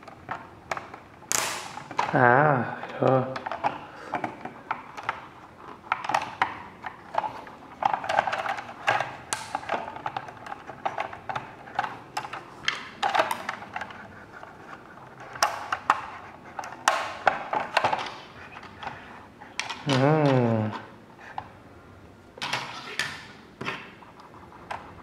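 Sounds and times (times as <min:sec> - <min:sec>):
plastic toy parts clicking and snapping: 0:00.0 - 0:02.2, 0:05.9 - 0:14.0, 0:15.2 - 0:18.9.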